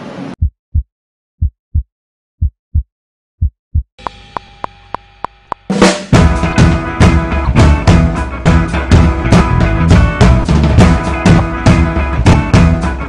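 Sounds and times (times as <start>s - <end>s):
deep heartbeat-like thumps: 0.4s - 4.0s
drum-kit beat: 0.4s - 13.0s.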